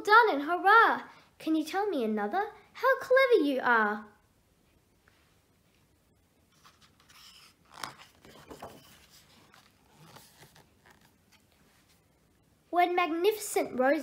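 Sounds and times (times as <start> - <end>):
paper crackles: 6.5 - 12.0
paper page rustling: 6.5 - 12.0.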